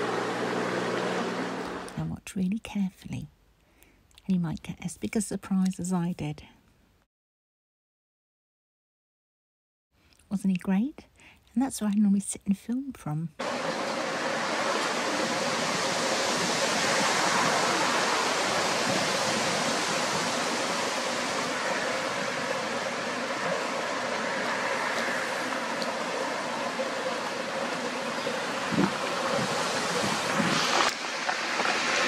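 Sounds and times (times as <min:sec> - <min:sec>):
wind rushing over microphone: 0:13.4 - 0:32.0.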